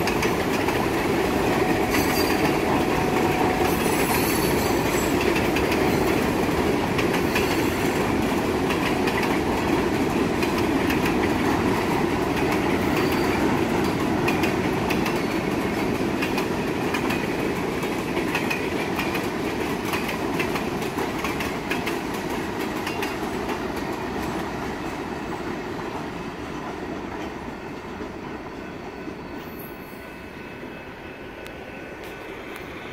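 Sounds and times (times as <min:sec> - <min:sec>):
freight train wheels clattering: 0:00.0 - 0:29.7.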